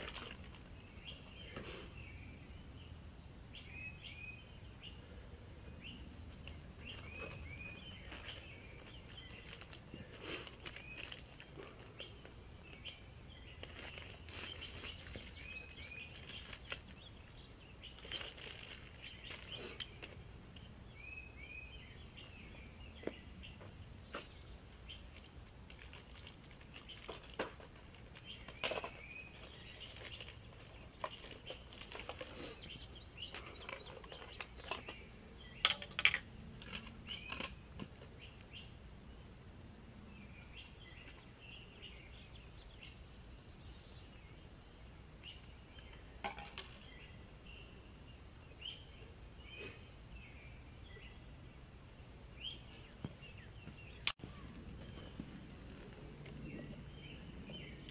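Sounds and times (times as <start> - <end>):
plastic packet rustling: 0.0 - 0.7, 8.0 - 11.9, 13.5 - 17.1, 17.9 - 20.2, 25.7 - 34.8.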